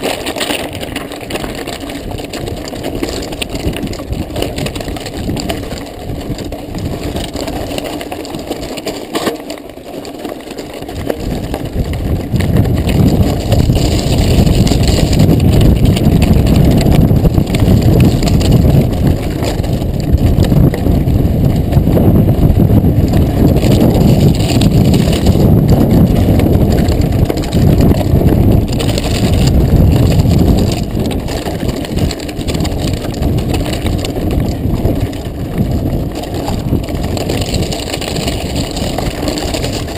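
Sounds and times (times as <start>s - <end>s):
bike and camera rattling: 0.0s - 39.9s
bike tyres crunching over gravel: 0.0s - 39.9s.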